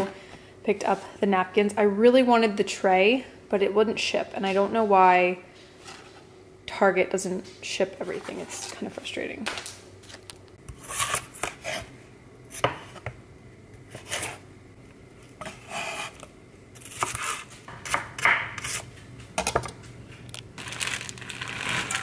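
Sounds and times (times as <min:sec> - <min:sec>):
knife chopping on wooden board: 0:16.9 - 0:18.8.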